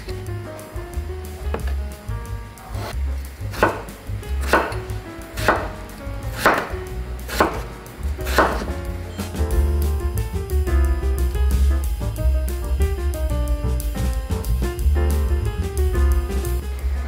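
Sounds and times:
knife cutting potatoes: 6.3s - 6.7s, 7.3s - 7.6s, 8.2s - 9.3s.

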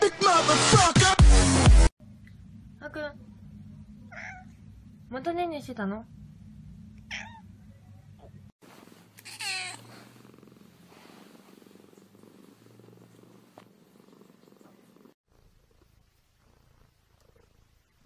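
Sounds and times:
cat meowing: 4.1s - 4.5s, 7.1s - 7.5s, 9.2s - 10.0s
cat purring: 6.0s - 18.0s.

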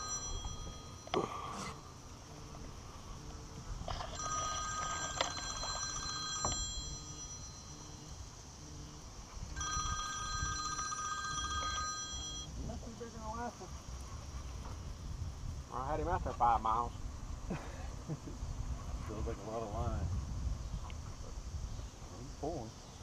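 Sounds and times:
high-pitched ringing tones: 0.0s - 13.3s.

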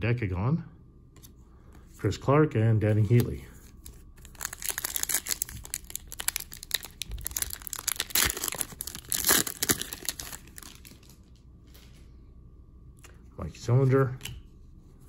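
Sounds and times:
foil wrapper tearing and crinkling: 4.2s - 11.2s.

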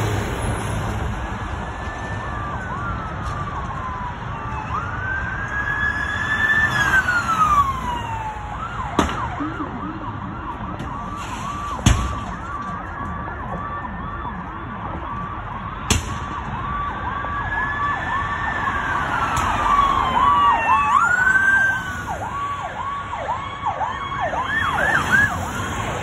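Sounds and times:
emergency vehicle siren: 0.0s - 26.0s
road traffic noise: 0.0s - 26.0s
sharp bangs: 15.8s - 16.4s.

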